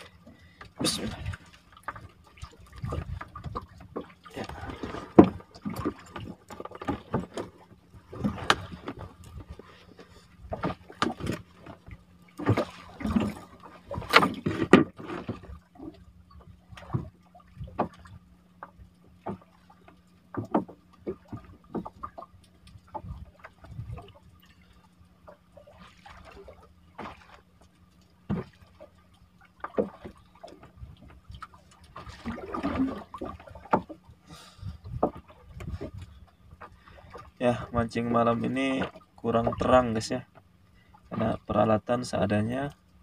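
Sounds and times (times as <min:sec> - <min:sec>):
water splashing and dripping: 0:10.5 - 0:34.1.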